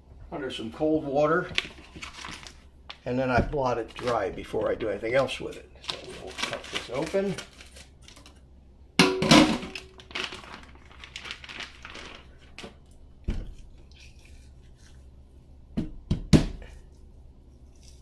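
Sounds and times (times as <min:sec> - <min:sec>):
plastic bag crinkling: 0:01.3 - 0:08.4, 0:09.7 - 0:14.7.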